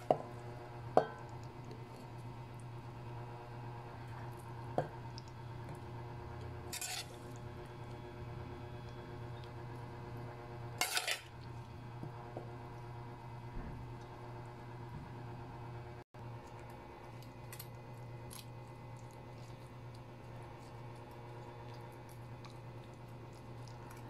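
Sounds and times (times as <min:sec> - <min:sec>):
steady low hum: 0:00.0 - 0:24.0
metal spoon scraping cookware: 0:06.7 - 0:07.3, 0:10.8 - 0:11.3.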